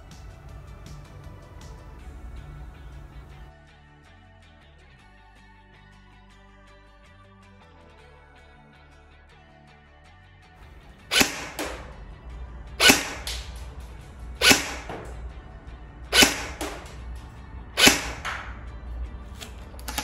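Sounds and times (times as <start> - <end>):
airsoft gun shots: 10.9 - 12.0, 12.7 - 15.2, 16.1 - 18.6.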